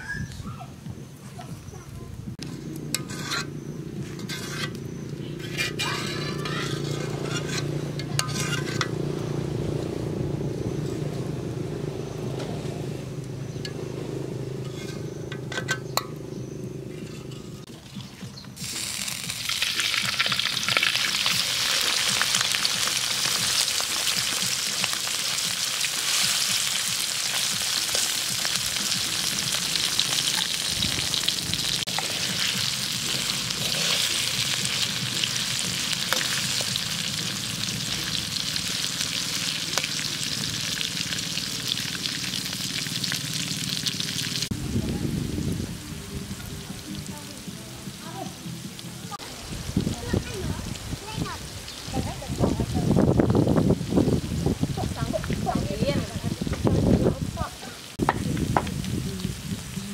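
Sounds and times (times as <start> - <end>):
crickets sizzling in hot oil: 17.7 - 44.6, 45.5 - 59.9.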